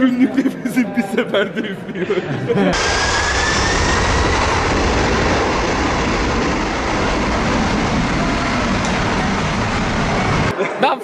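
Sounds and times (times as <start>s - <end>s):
jet engines roaring: 2.7s - 10.6s.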